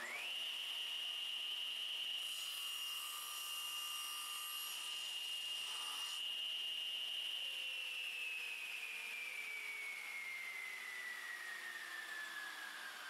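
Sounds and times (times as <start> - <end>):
table saw whining: 0.0 - 13.0
saw cutting wood hiss: 2.2 - 6.2.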